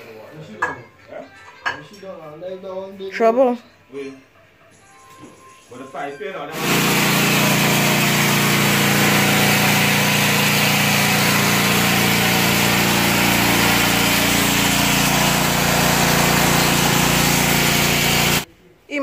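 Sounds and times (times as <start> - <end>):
pressure washer motor humming: 6.5 - 18.5
water jet hissing on concrete: 6.6 - 18.5.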